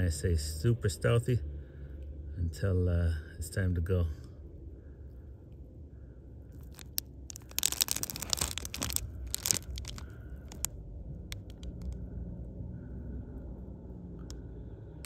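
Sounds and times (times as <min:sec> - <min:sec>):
low steady rumble: 0:00.0 - 0:15.0
rustling crinkling handling noise: 0:06.6 - 0:10.7, 0:11.3 - 0:12.0.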